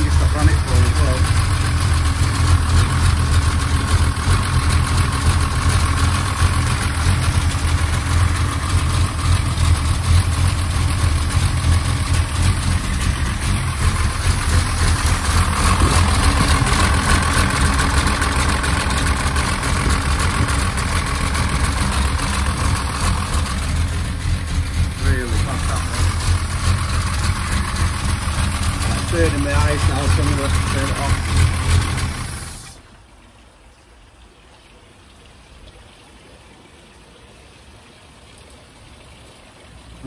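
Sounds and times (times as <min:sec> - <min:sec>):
car engine idling: 0:00.0 - 0:33.1.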